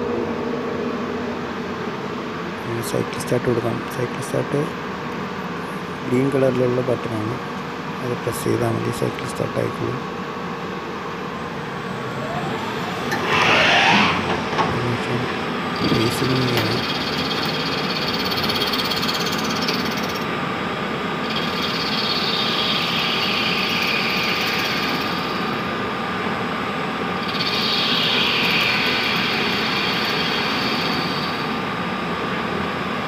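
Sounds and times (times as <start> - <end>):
lathe machine running: 9.3 - 25.7, 27.1 - 31.8.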